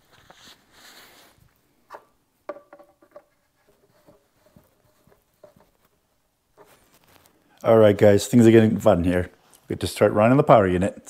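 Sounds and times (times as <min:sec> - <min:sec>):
faint clicks and taps: 0:01.9 - 0:07.4.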